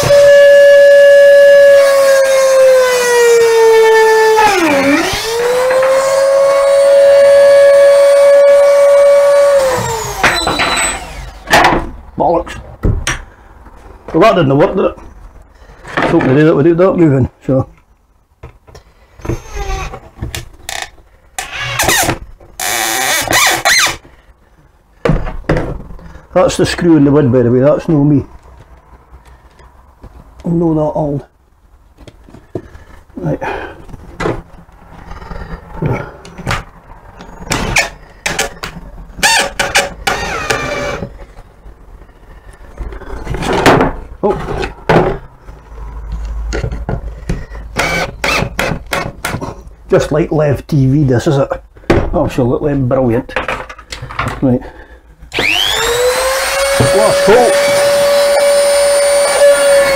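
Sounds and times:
screw squealing into wood: 0:00.0 - 0:06.3, 0:08.1 - 0:11.4, 0:19.2 - 0:24.0, 0:37.5 - 0:41.1, 0:47.8 - 0:49.1, 0:55.4 - 0:59.9
cordless drill running: 0:00.0 - 0:10.2, 0:40.1 - 0:41.0, 0:47.8 - 0:48.5, 0:55.3 - 0:59.9.

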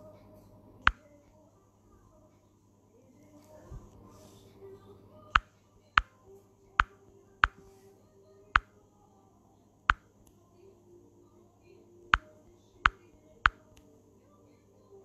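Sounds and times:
fingernails tapping touchscreen: 0:06.8 - 0:07.7.

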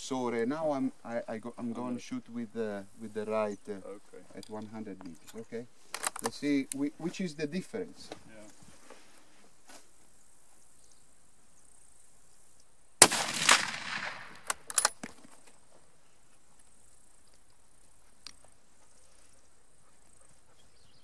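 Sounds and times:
sharp clicks: 0:12.6 - 0:15.1
rifle shot: 0:13.0 - 0:14.9.

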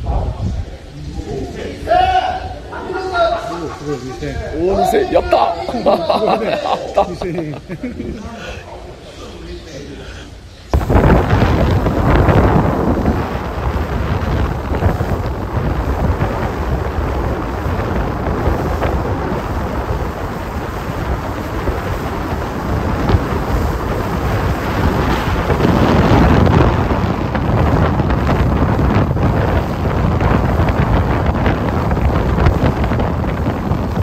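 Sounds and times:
wind buffeting microphone: 0:00.0 - 0:07.7, 0:10.7 - 0:34.0
water rushing past hull: 0:10.4 - 0:34.0.

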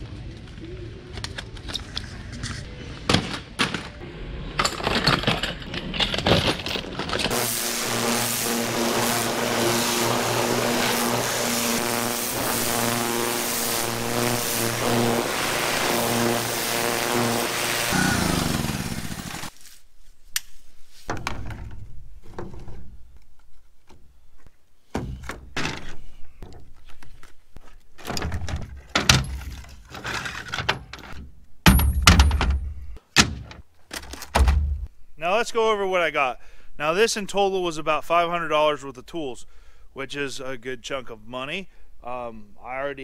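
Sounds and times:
pressure washer spraying metal: 0:07.3 - 0:19.5.

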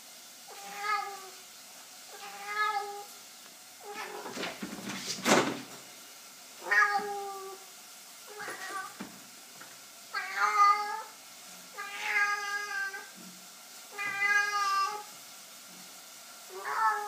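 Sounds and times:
cat meowing: 0:00.5 - 0:01.4, 0:02.1 - 0:03.1, 0:03.8 - 0:04.4, 0:06.6 - 0:07.6, 0:08.3 - 0:09.0, 0:10.1 - 0:11.2, 0:11.8 - 0:13.1, 0:13.9 - 0:15.1, 0:16.5 - 0:17.0.

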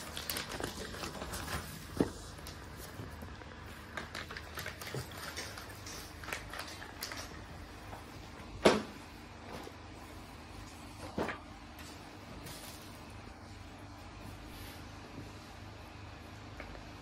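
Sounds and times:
paper and plastic rustling: 0:00.0 - 0:09.8, 0:10.6 - 0:13.2.

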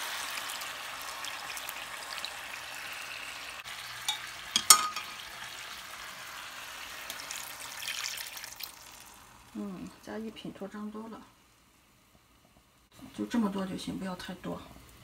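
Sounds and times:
chicken sizzling in a pan: 0:00.0 - 0:15.0
glass dish knocks: 0:04.6 - 0:05.1.

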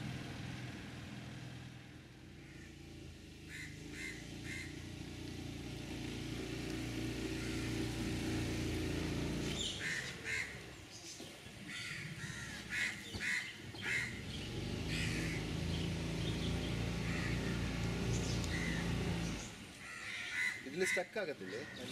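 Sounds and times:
boat engine droning: 0:00.0 - 0:21.9
crows cawing: 0:02.4 - 0:05.0, 0:07.1 - 0:08.4, 0:09.6 - 0:10.7, 0:11.6 - 0:15.6, 0:17.0 - 0:17.9, 0:18.5 - 0:21.9.

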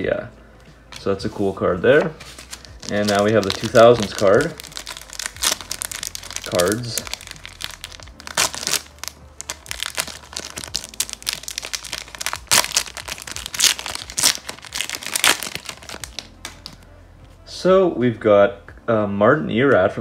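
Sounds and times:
plastic wrapper crinkling and tearing: 0:02.2 - 0:16.8.

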